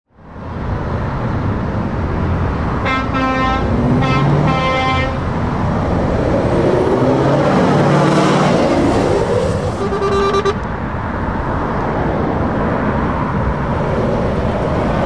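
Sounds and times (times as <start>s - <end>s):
diesel truck driving past: 0.4s - 15.0s
truck horn blasts: 2.8s - 5.3s, 9.7s - 10.7s.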